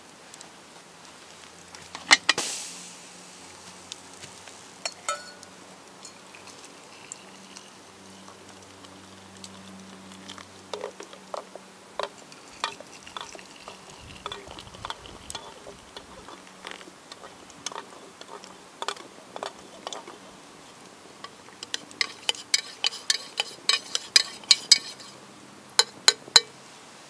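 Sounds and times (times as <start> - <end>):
metal spoon clinking in mug: 4.8 - 7.2, 21.6 - 25.2, 25.8 - 26.5
water pouring into mugs: 12.0 - 18.5.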